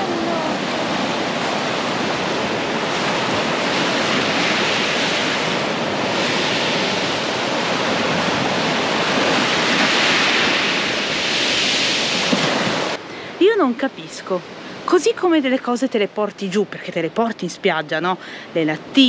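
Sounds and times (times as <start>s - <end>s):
surf breaking on a beach: 0.0s - 13.0s.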